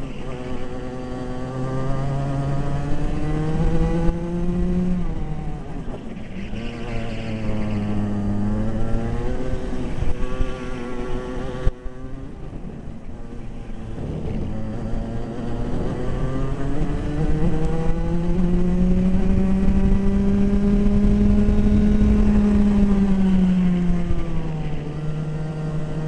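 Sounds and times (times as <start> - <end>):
kart engine revving: 0.0 - 26.0.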